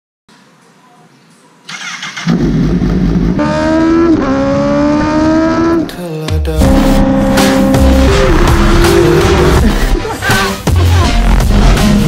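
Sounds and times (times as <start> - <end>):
motorcycle engine revving hard: 1.8 - 5.9, 6.6 - 9.8.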